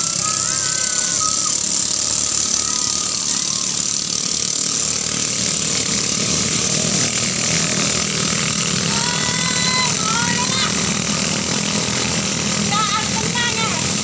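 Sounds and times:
boat engines buzzing: 0.0 - 14.0.

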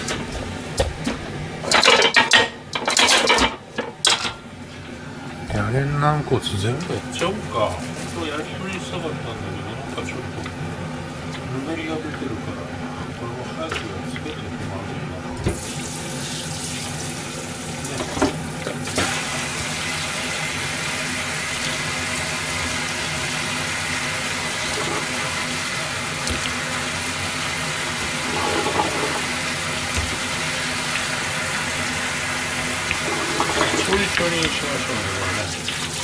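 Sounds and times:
tap water running into sink: 15.5 - 36.0.

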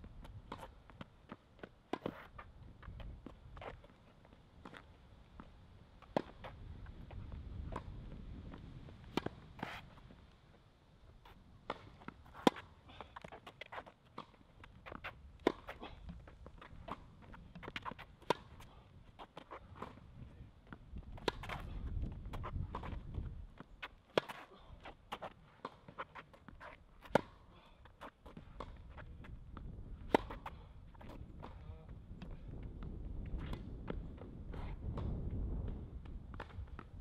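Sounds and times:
footsteps on court: 0.0 - 37.0
tennis balls struck by rackets: 6.0 - 6.6, 9.1 - 9.8, 11.6 - 31.6.

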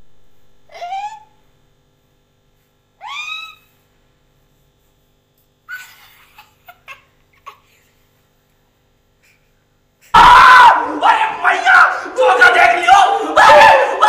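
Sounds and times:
person giggling: 5.7 - 8.0
men shouting loudly: 10.2 - 14.0.

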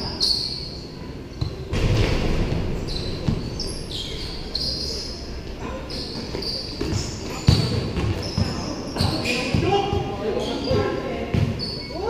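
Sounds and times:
sneakers squeaking: 0.0 - 1.7, 2.8 - 12.0
basketball bouncing on court: 6.8 - 9.8.

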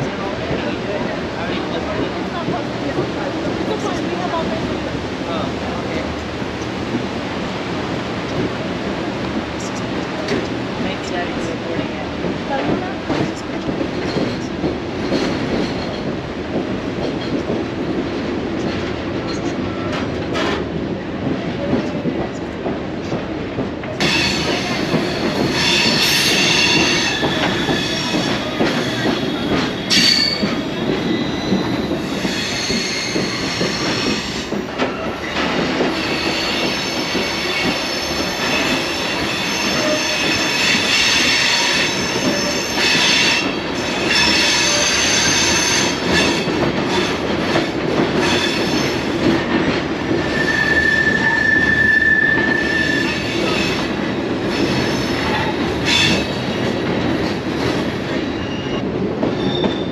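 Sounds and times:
train rumbling on rails: 0.0 - 59.9
train wheels squealing: 24.0 - 47.2, 50.2 - 53.9, 58.1 - 59.9.

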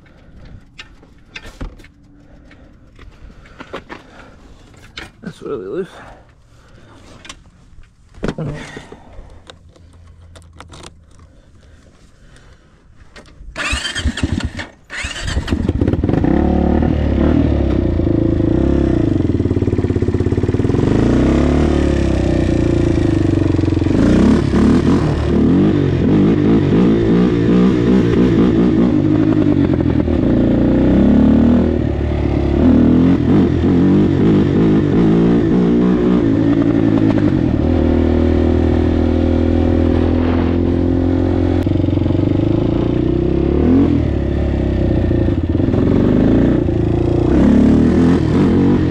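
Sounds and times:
quad engine revving: 13.6 - 48.9.

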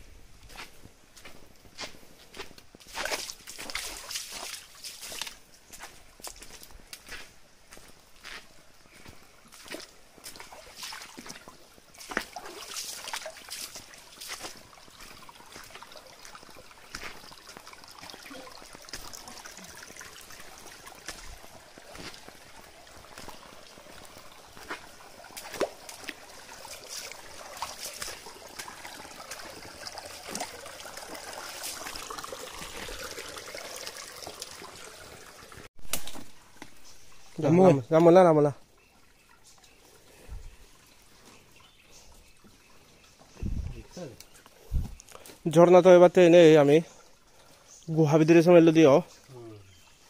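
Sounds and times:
footsteps on wet rocks: 0.4 - 19.3, 20.4 - 30.6, 35.8 - 36.9
stream trickling over stones: 2.3 - 50.0.

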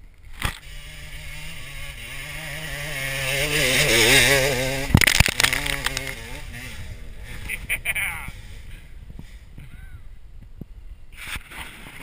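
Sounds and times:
dirt striking camera: 0.1 - 0.7, 4.6 - 6.7
dirt bike engine revving: 0.4 - 10.3.

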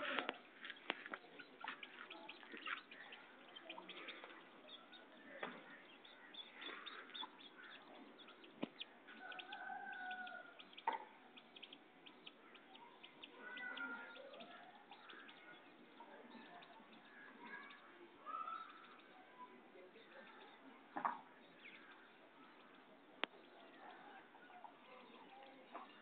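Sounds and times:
faint chicken calls: 0.0 - 11.2, 12.2 - 15.6.

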